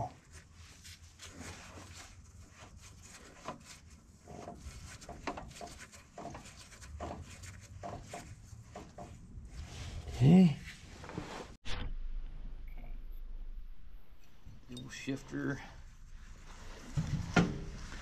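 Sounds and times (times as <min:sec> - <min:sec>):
low steady hum: 0:11.7 - 0:18.0.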